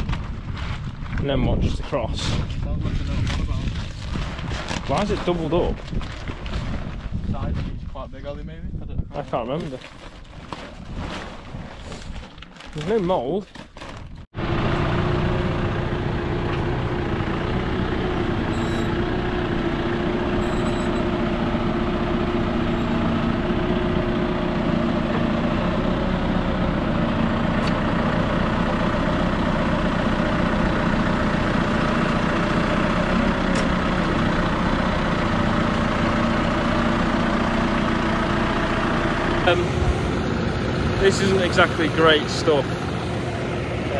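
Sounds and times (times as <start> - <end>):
tractor diesel engine running: 14.2 - 43.9.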